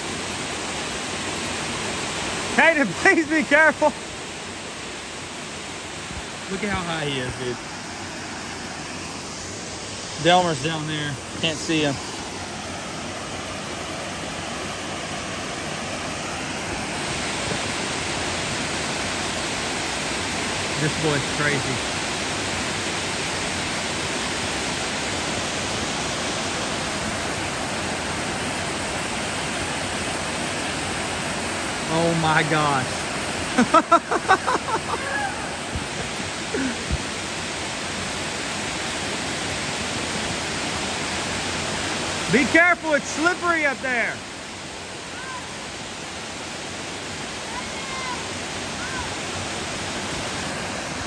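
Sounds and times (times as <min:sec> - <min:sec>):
waterfall rushing: 0:00.0 - 0:51.0
person exclaiming: 0:33.6 - 0:35.7, 0:36.5 - 0:36.9, 0:45.1 - 0:45.5, 0:47.5 - 0:48.2.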